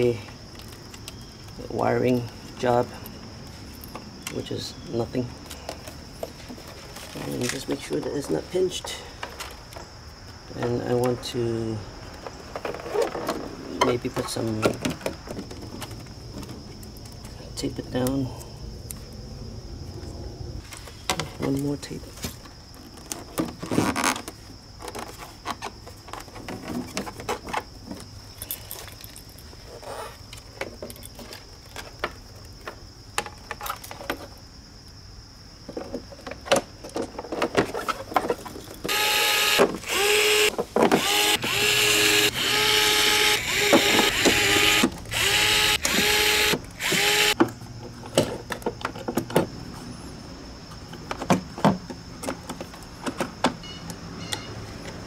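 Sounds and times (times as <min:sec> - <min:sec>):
clicks and rustles of parts handled: 0:00.0 - 0:03.1, 0:05.4 - 0:09.9, 0:20.6 - 0:34.4, 0:35.7 - 0:38.9, 0:50.8 - 0:55.0
cordless drill running in bursts: 0:38.9 - 0:47.4.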